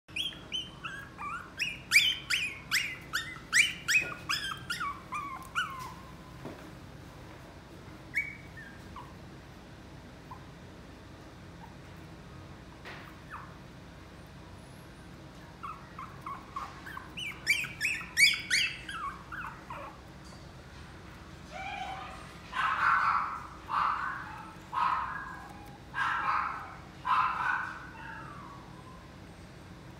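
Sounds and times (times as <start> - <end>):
puppy whining yips: 0.1 - 6.4, 8.1 - 9.2, 13.1 - 13.6, 15.4 - 20.1, 21.6 - 29.5
dog barking: 21.9 - 28.3.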